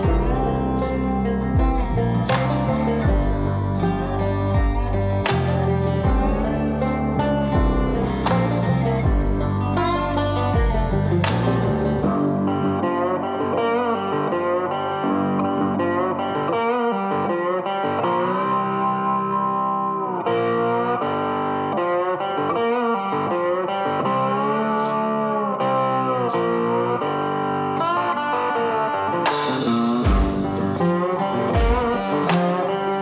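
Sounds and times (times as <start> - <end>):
guitar with bending notes: 0.0 - 33.0.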